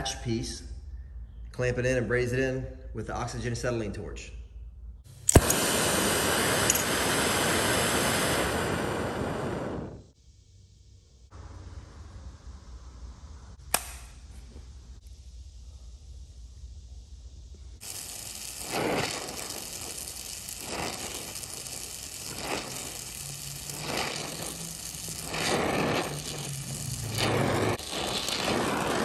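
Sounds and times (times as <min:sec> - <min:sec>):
torch flame hissing: 0:05.1 - 0:10.2, 0:14.7 - 0:29.0.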